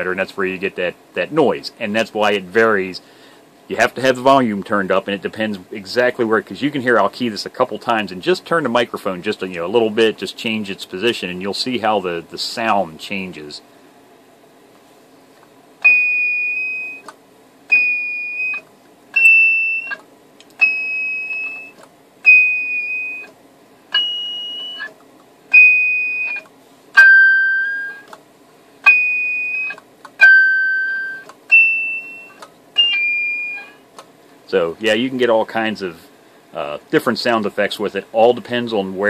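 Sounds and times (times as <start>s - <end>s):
high-pitched radio feedback ping: 19.2s - 20.0s, 24.0s - 24.9s, 25.5s - 26.4s, 27.0s - 28.1s, 28.9s - 33.8s.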